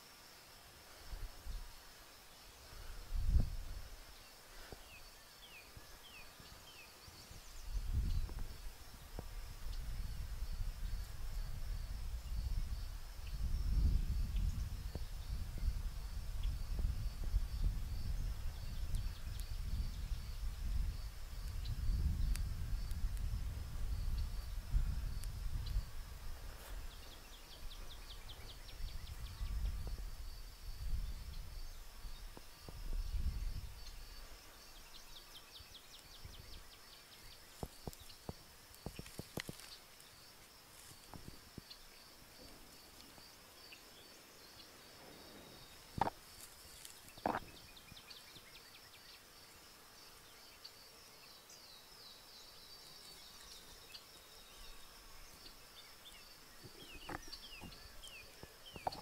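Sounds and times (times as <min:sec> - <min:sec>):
fire crackles: 0:14.8 - 0:27.7, 0:37.4 - 0:41.7.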